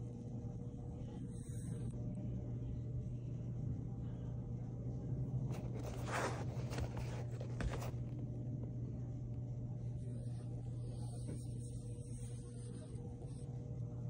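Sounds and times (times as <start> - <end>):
steady low hum: 0.0 - 14.0
hand rustling a leather sneaker: 5.5 - 8.1.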